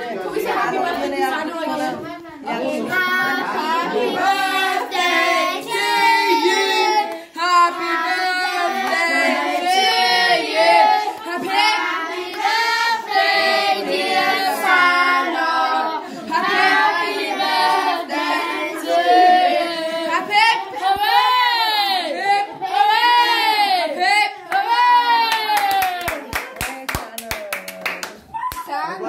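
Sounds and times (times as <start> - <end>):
children and adults singing: 0.0 - 25.2.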